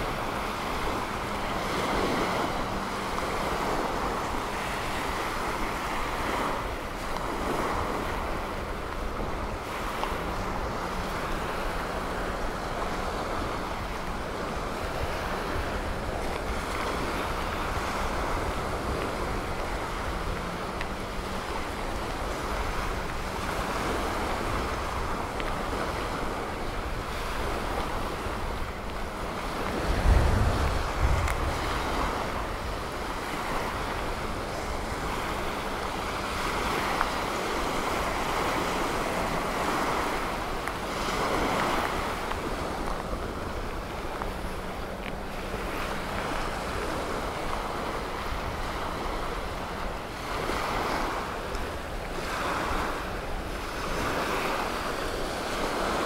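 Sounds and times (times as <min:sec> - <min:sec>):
surf washing onto sandy beach: 0:00.0 - 0:56.0
wind buffeting microphone: 0:00.0 - 0:56.0.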